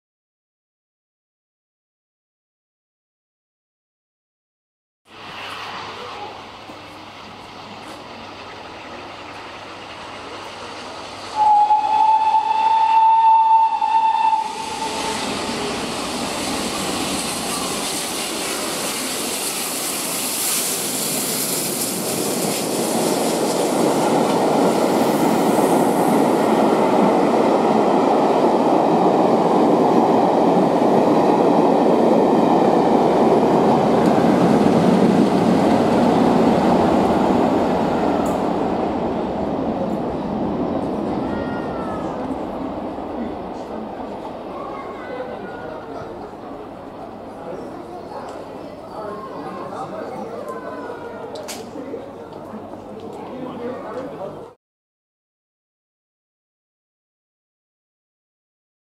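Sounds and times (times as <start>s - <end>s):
train rushing past on rails: 5.1s - 54.1s
steam locomotive whistle: 11.4s - 15.8s.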